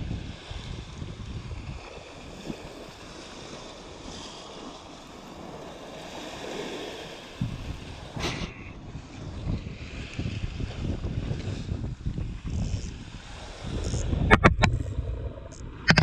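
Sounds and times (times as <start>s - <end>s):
wind buffeting microphone: 0.0s - 4.1s, 6.4s - 16.0s
surf washing over rocks: 0.0s - 16.0s
sharp click: 15.5s - 16.0s.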